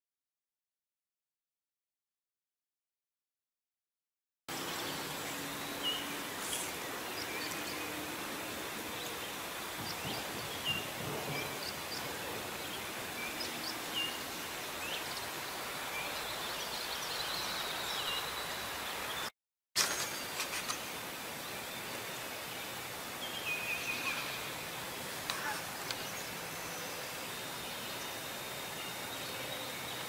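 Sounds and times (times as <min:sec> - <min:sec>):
small birds chirping: 0:04.5 - 0:19.3, 0:20.6 - 0:30.0
outdoor background hiss: 0:04.5 - 0:30.0.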